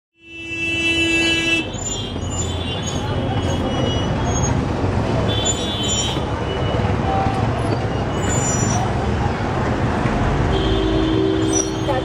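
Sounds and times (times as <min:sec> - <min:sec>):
vehicle horn: 0:00.2 - 0:02.8, 0:10.5 - 0:12.0
street traffic noise: 0:00.2 - 0:12.0.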